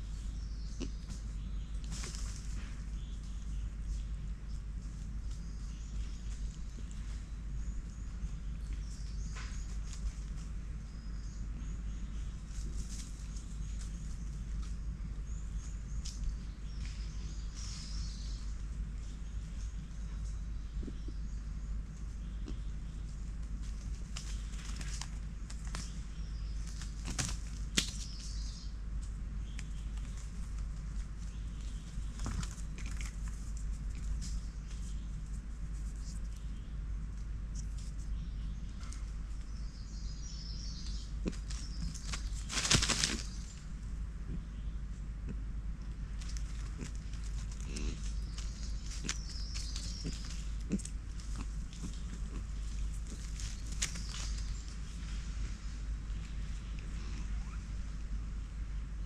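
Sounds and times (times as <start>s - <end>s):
steady low rumble: 0.0s - 59.0s
dry leaves rustling: 12.4s - 14.7s, 23.1s - 36.6s, 40.8s - 43.8s, 46.0s - 56.6s.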